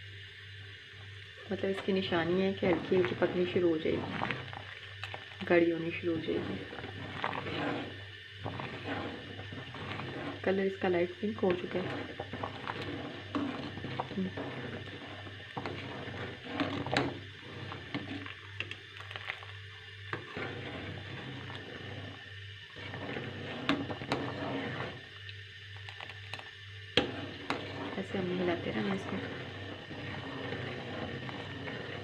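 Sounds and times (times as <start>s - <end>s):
steady low hum: 0.0s - 32.0s
metal spatula scraping a metal pan: 5.9s - 10.6s, 11.4s - 18.3s, 20.1s - 22.1s, 22.8s - 25.0s, 27.0s - 32.0s.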